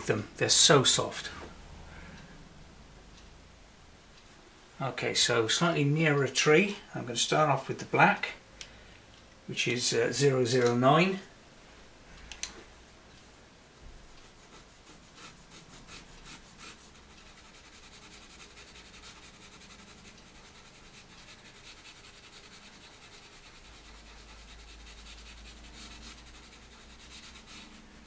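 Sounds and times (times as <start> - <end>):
pencil scratching on paper: 14.2 - 27.8.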